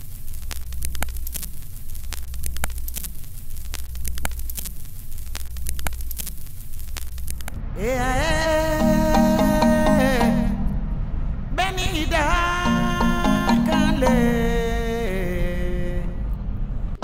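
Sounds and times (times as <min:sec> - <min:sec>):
film pops and crackles: 0:00.0 - 0:07.6
static hiss: 0:00.0 - 0:07.7
low hum: 0:07.3 - 0:17.0.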